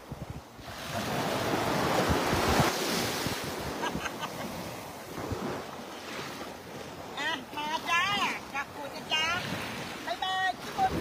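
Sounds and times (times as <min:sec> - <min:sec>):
wind buffeting microphone: 0:00.0 - 0:05.8, 0:09.1 - 0:11.0
small waves breaking: 0:00.0 - 0:11.0.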